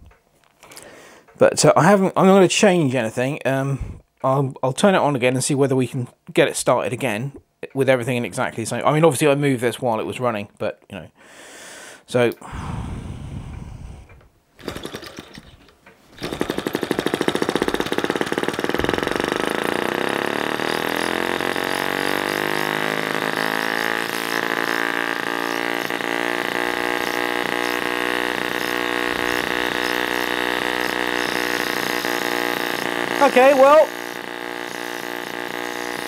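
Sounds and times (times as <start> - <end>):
model two-stroke engine running: 14.6 - 36.0.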